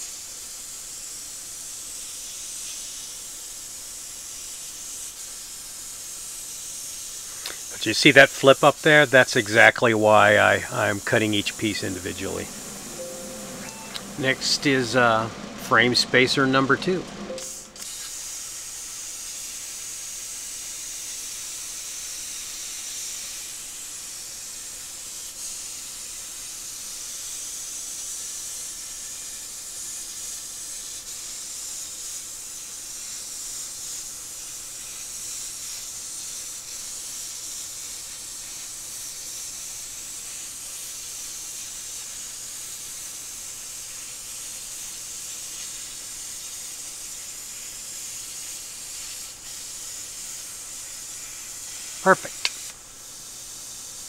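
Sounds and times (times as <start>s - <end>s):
plasma cutter arc hissing: 0.0s - 15.5s, 30.8s - 54.0s.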